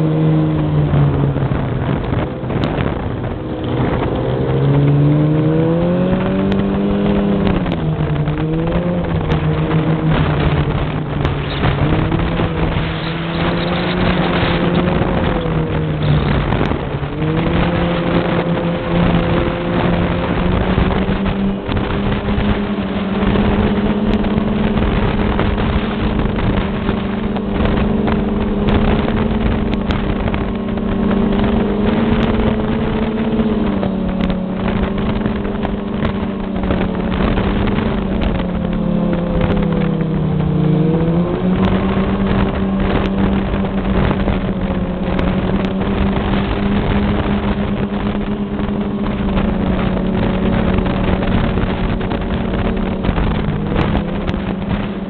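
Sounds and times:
snowmobile engine running: 0:00.0 - 0:55.0
steady rushing noise: 0:00.0 - 0:55.0.

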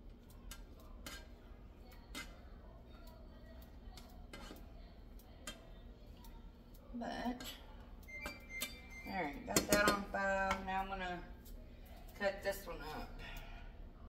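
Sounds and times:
spatula clicking on skillet: 0:00.1 - 0:08.8, 0:09.5 - 0:10.8.

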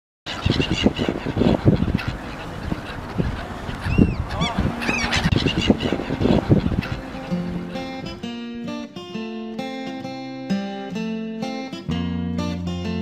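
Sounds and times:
wind rumbling on microphone: 0:00.3 - 0:08.3
gulls calling: 0:00.3 - 0:08.4.

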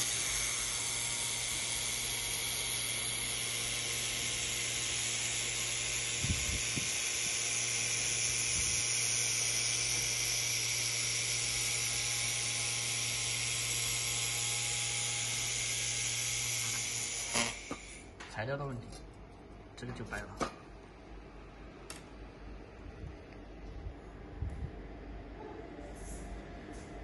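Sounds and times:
welding head hissing: 0:16.6 - 0:18.1
low steady hum: 0:18.2 - 0:27.0.

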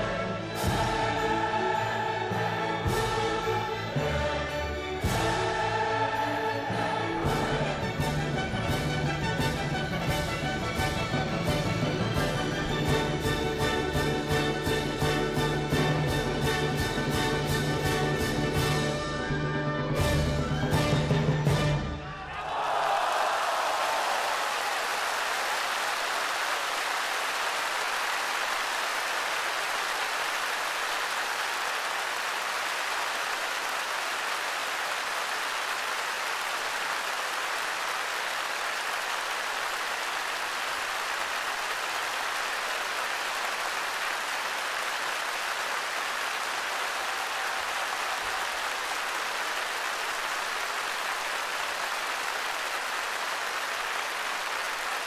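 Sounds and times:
audience applauding: 0:22.1 - 0:55.0.

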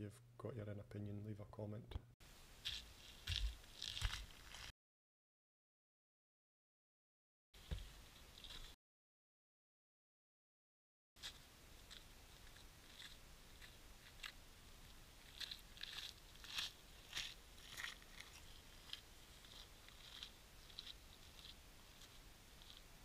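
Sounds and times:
footsteps crunching on stony path: 0:02.6 - 0:04.7, 0:11.2 - 0:22.9.

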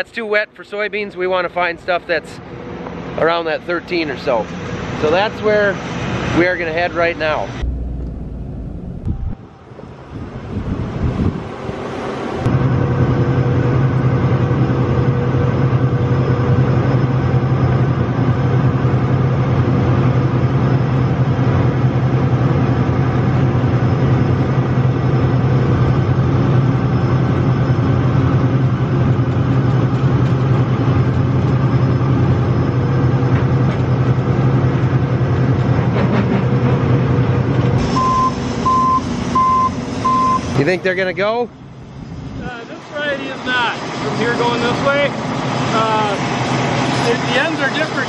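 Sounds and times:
diesel engine droning: 0:00.0 - 0:48.0
backup alarm beeping: 0:07.6 - 0:10.3, 0:37.8 - 0:40.6.

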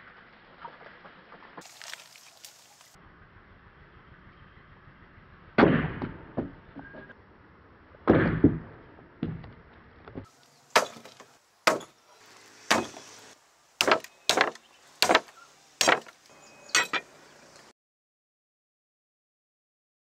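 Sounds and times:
cleaver chopping coconut on wood: 0:10.8 - 0:11.9, 0:12.7 - 0:13.0, 0:13.8 - 0:16.1.

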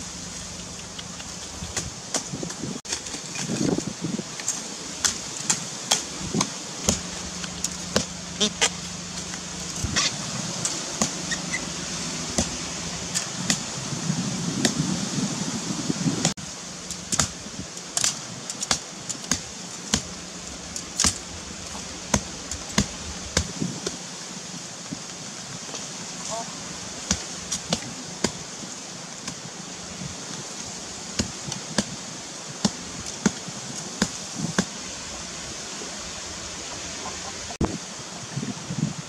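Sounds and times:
knife chopping into earth: 0:05.0 - 0:08.8, 0:12.3 - 0:13.7, 0:17.1 - 0:17.4.

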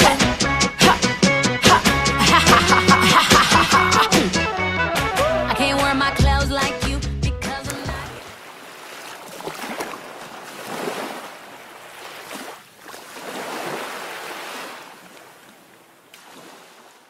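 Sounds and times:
sea waves washing in: 0:07.7 - 0:17.0.

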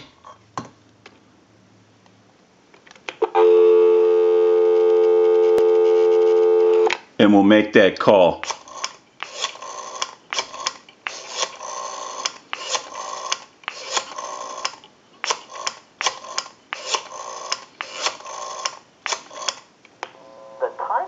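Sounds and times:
rotary telephone dial clicking: 0:08.4 - 0:19.6.

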